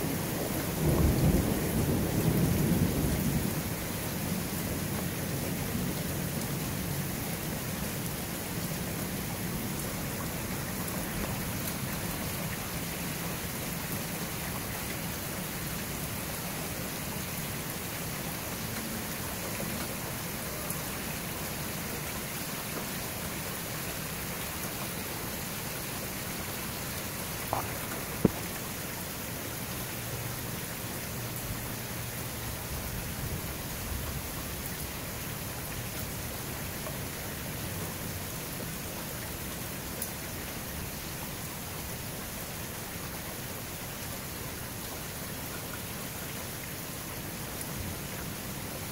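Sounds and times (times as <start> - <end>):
steady rain falling: 0.0 - 48.9
low rumble of thunder: 0.1 - 6.0.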